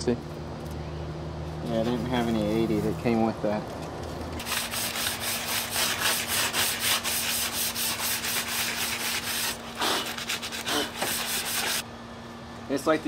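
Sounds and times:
sandpaper rubbing sheet metal: 4.4 - 11.8.

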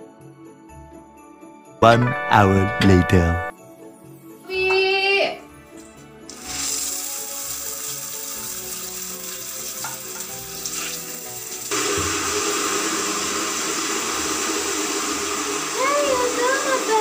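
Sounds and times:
spray splashing on tile floor: 6.3 - 17.0
water spraying from shower hose: 6.3 - 17.0.

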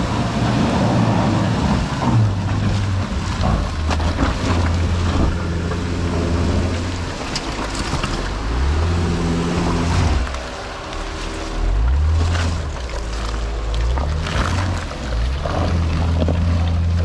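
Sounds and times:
tyres churning mud: 0.0 - 17.0
engine revving under load: 8.0 - 13.0.

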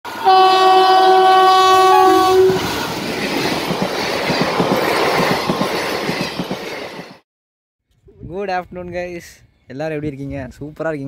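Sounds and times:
locomotive horn: 0.1 - 2.7
train wheels clickety-clack: 2.6 - 7.2.

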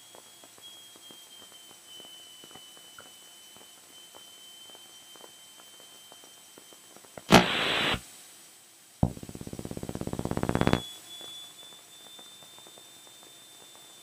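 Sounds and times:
faint high whine: 0.0 - 8.0, 9.0 - 14.0
intercom hiss: 7.3 - 8.0, 9.0 - 10.8
radio static burst: 7.3 - 8.0, 9.0 - 10.8.

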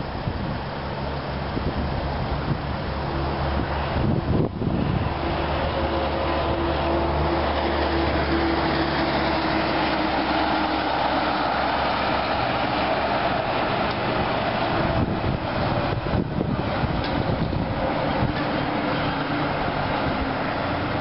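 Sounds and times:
diesel truck engine running: 0.0 - 21.0
truck tyre and road noise: 0.0 - 21.0.

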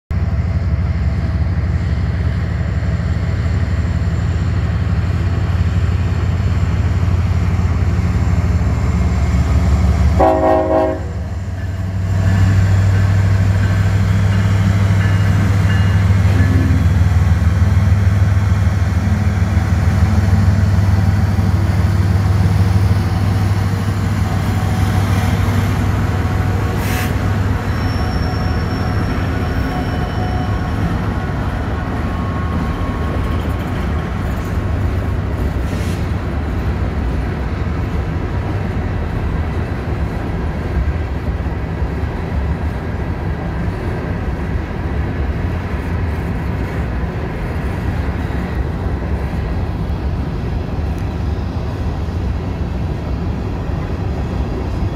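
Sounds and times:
locomotive engine drone: 0.1 - 54.9
train horn blast: 10.2 - 11.3.

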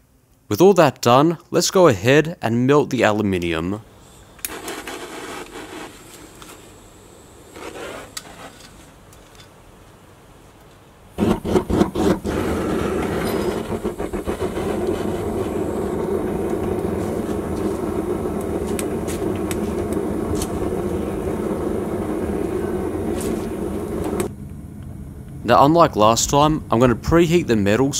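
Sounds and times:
burner sputtering pops: 11.2 - 25.4
loud rushing flame: 11.2 - 27.9.

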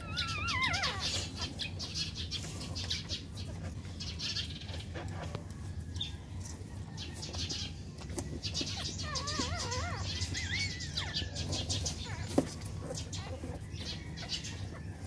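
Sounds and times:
puppies squeaking: 0.0 - 15.0.

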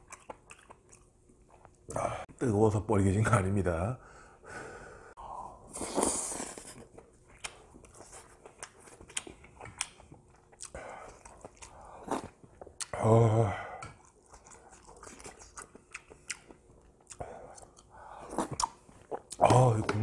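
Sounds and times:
close chewing with wet mouth clicks: 0.0 - 1.8, 6.9 - 13.0, 13.9 - 19.5.

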